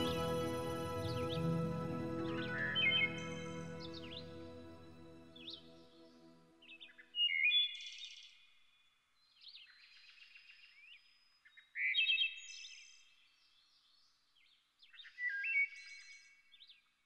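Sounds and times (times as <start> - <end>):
songbirds chirping and trilling: 0.0 - 5.9.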